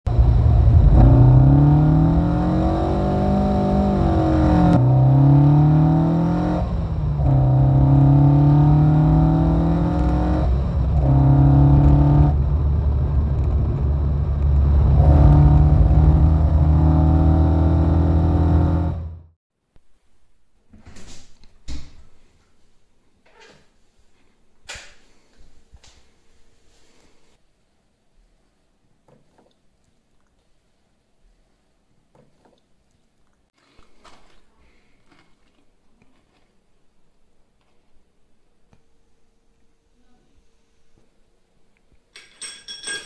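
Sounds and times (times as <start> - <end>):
car engine accelerating hard: 0.1 - 19.3.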